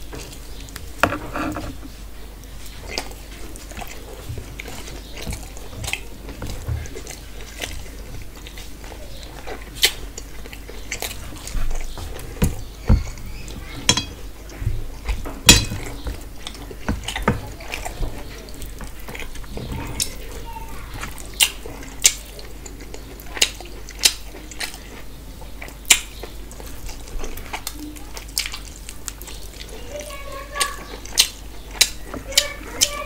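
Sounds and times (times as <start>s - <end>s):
fingers mixing rice on steel plate: 3.0s - 19.4s
wet chewing and lip smacks: 21.0s - 29.8s.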